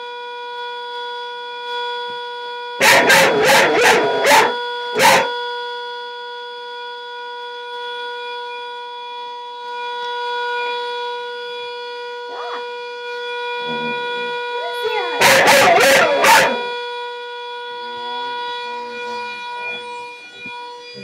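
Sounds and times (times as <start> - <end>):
rising and falling cry: 2.8 - 5.3, 15.2 - 16.6.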